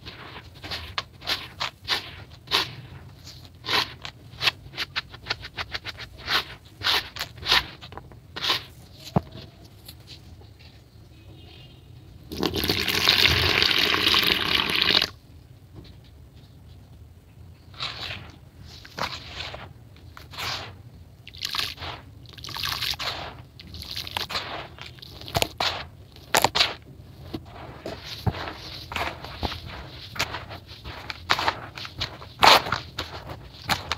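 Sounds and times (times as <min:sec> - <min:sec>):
hands crunching gritty dirt: 0:00.0 - 0:09.1, 0:21.5 - 0:33.9
water pouring onto dirt: 0:12.3 - 0:15.1, 0:21.3 - 0:24.3.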